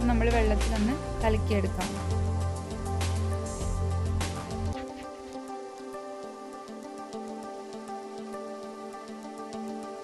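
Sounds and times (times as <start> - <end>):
soft sustained background music: 0.0 - 10.0.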